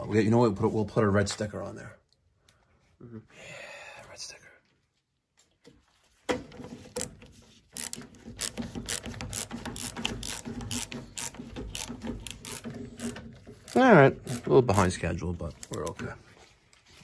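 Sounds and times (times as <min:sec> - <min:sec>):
ratcheting screwdriver clicking: 0:07.8 - 0:14.5.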